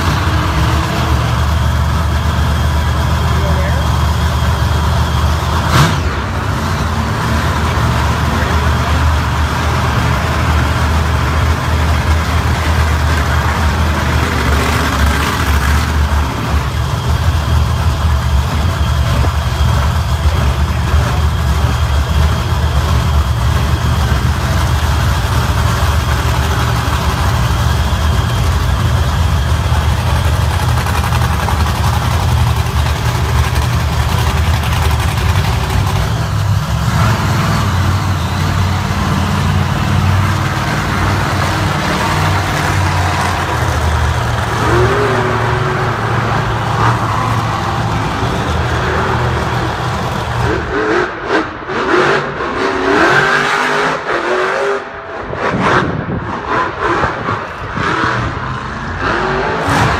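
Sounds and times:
large engine idling: 0.0 - 51.6.

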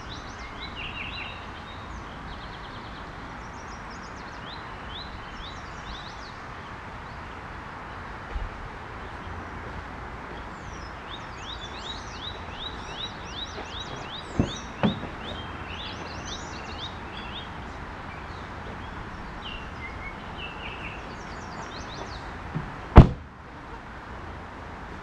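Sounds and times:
songbird singing: 0.0 - 23.9
sharp knocks: 14.0 - 15.4, 22.5 - 23.3.

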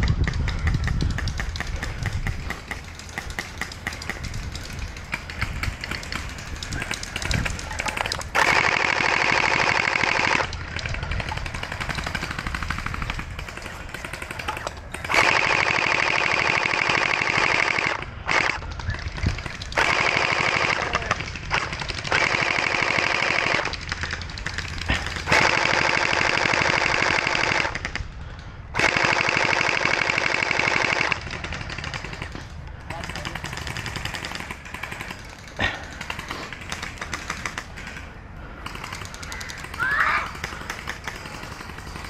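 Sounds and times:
gel blaster firing bursts: 24.8 - 27.8.

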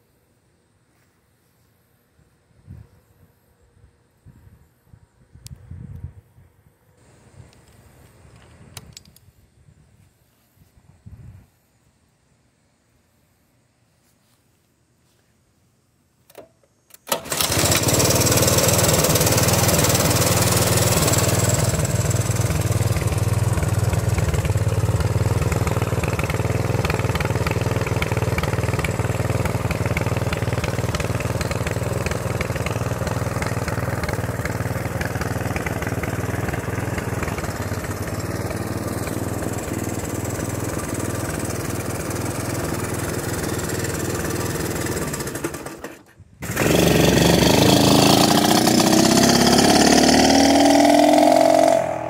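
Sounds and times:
engine starting and idling: 16.4 - 51.3.

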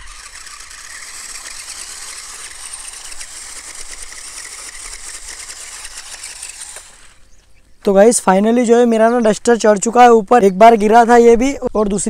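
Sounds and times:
rc car motor and gears whirring: 0.0 - 7.5.

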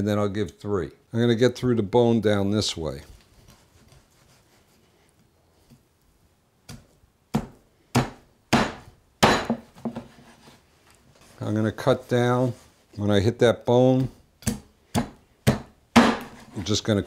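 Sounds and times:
meat cleaver chopping on wood: 6.7 - 9.6, 14.0 - 16.5.

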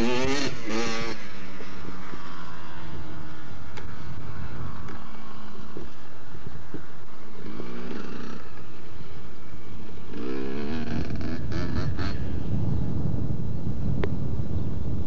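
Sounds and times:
motorcycle engines revving: 0.0 - 15.0.

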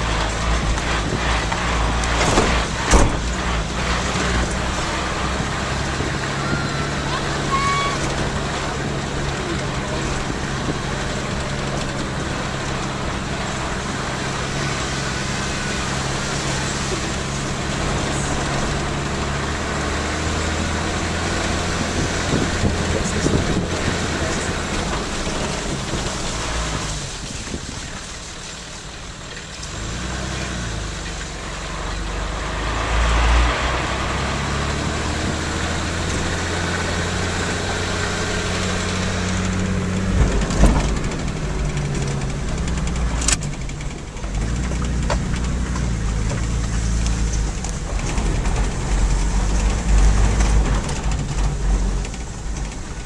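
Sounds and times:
car engine running: 0.0 - 53.0
sharp knocks: 0.8 - 3.7.

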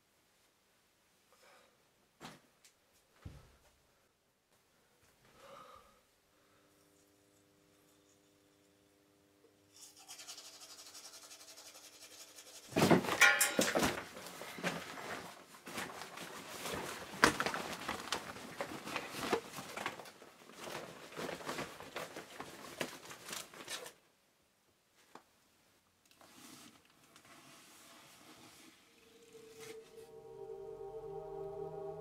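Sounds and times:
toothbrush scrubbing: 9.8 - 12.8
plastic folder rustling: 13.8 - 24.0.

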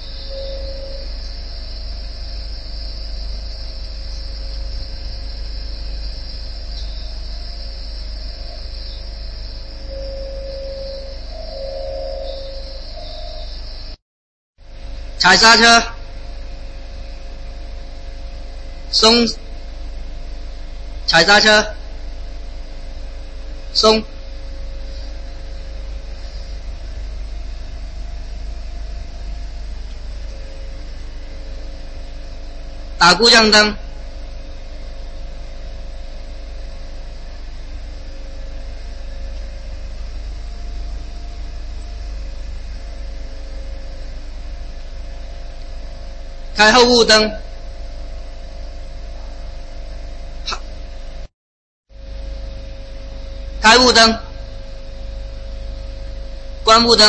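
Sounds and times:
high hiss: 0.0 - 14.0, 23.7 - 47.2
mechanical hum: 0.0 - 14.0, 14.6 - 51.3, 51.9 - 57.0.

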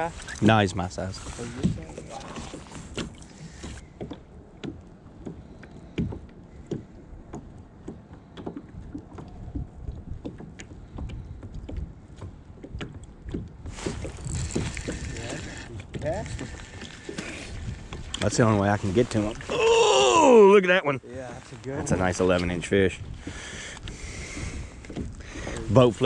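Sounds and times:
waves lapping against kayak hulls: 0.0 - 26.0
wind rumble on microphone: 5.3 - 19.7, 21.2 - 26.0
rustling noise: 13.6 - 19.5.

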